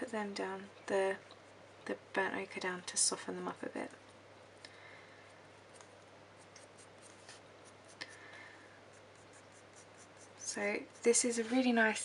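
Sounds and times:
pencil scratching on paper: 6.4s - 8.0s, 8.9s - 11.6s.

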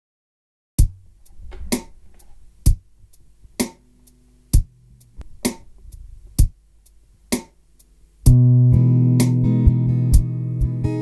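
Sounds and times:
sharp snare drum hit: 5.4s - 5.7s.

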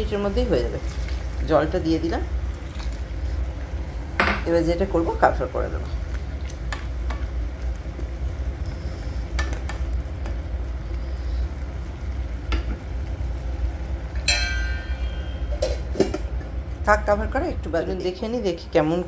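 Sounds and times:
metal clink: 14.2s - 15.8s.

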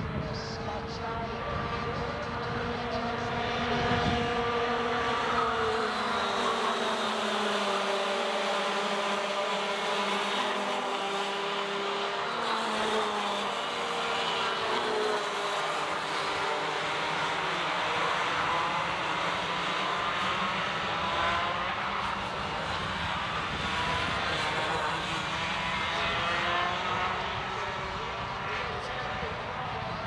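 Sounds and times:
kart engines racing: 0.0s - 30.0s.

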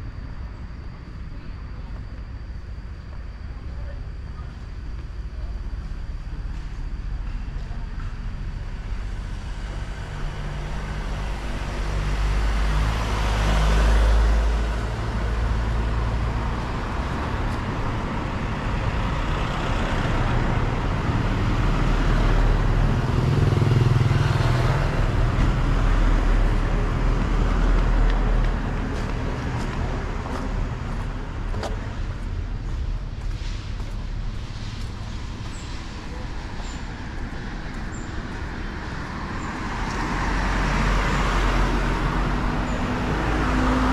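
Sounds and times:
cars and vans passing: 0.0s - 43.9s
steady low traffic rumble: 0.0s - 43.9s.

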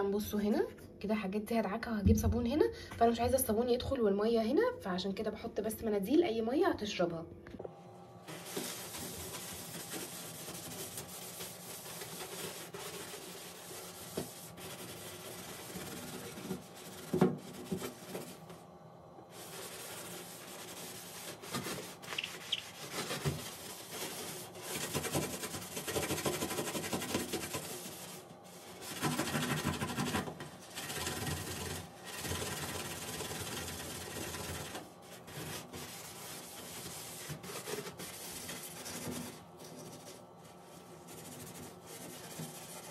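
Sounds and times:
sponge scrubbing steel: 8.3s - 18.5s, 19.3s - 42.9s.

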